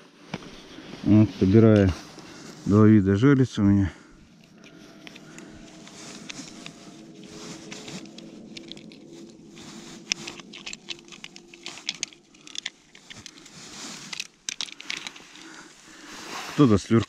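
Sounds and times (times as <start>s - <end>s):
faint steady hum: 0.0s - 17.0s
hands handling plastic tip-up: 4.4s - 15.7s.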